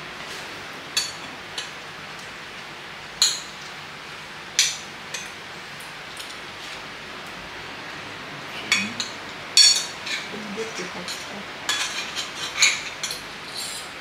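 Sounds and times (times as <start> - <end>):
forks clinking on plates: 8.7 - 13.2.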